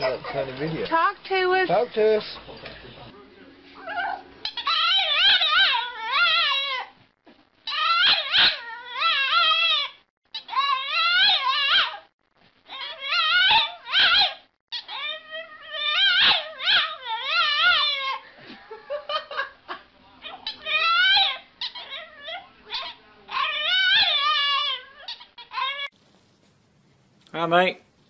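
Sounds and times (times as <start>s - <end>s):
puppy yowling: 3.8s - 7.0s, 7.7s - 12.1s, 12.7s - 18.3s, 20.2s - 25.9s.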